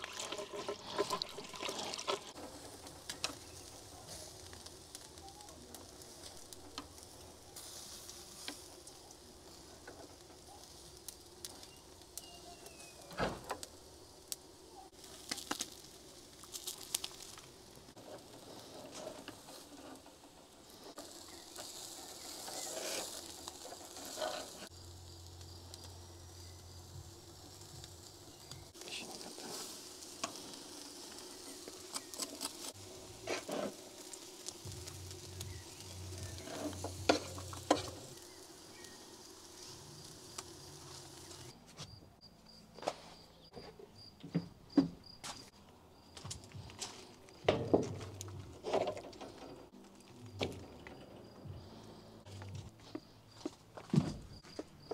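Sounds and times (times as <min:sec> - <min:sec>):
meat sizzling on grill: 0:00.0 - 0:41.6.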